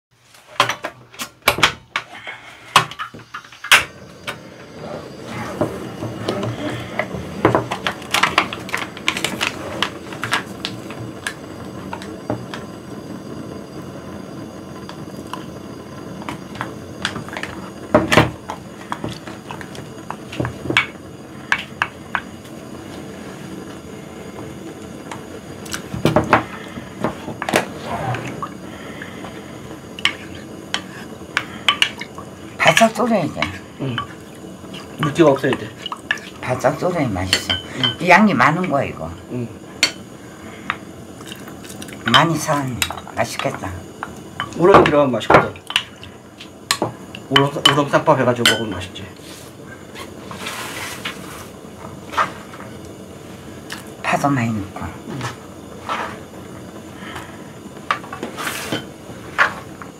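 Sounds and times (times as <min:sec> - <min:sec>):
gas burner hissing: 0:00.2 - 0:59.9
wooden spoon scraping a pot: 0:04.6 - 0:10.5, 0:49.1 - 0:52.7, 0:55.1 - 0:56.3, 0:58.1 - 0:59.9.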